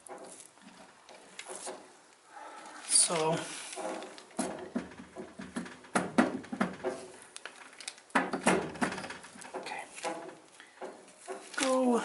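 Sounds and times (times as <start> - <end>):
metallic clicks and knocks: 3.8 - 11.5.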